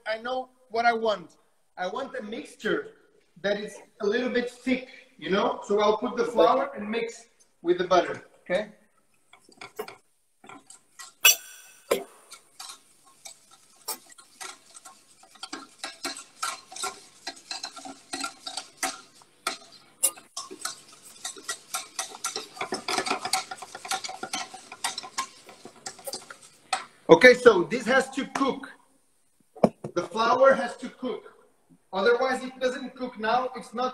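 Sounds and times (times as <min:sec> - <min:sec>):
whisks scraping steel pots: 0:08.9 - 0:27.1.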